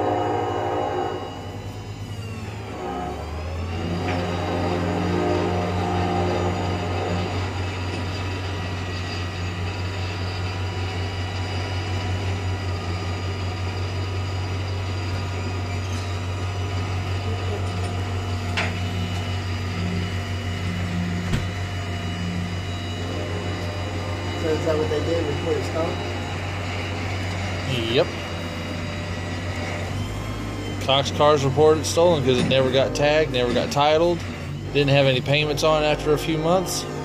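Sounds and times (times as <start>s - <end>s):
tow truck engine running: 0.0s - 37.0s
winch pulling: 0.8s - 37.0s.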